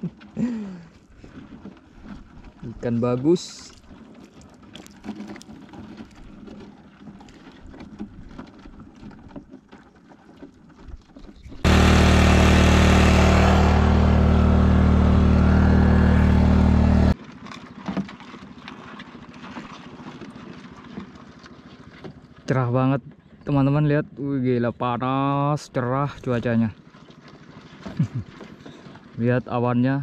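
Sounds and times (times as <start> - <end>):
loud engine running: 11.6 - 17.2.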